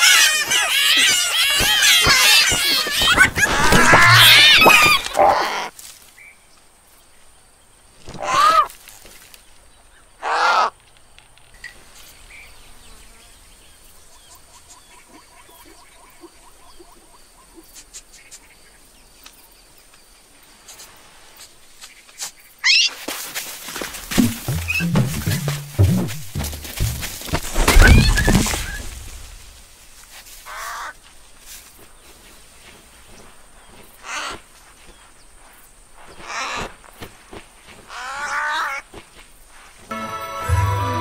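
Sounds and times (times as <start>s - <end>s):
cartoon animal rough calls: 0.0s - 5.7s.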